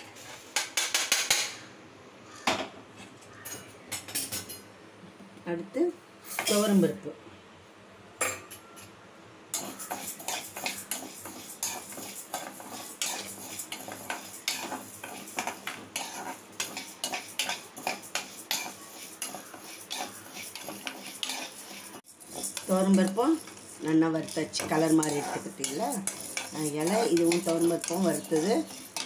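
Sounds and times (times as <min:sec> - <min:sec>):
lentils rattling against pan: 0:09.6 - 0:29.0
metal spatula scraping a pan: 0:09.6 - 0:29.0.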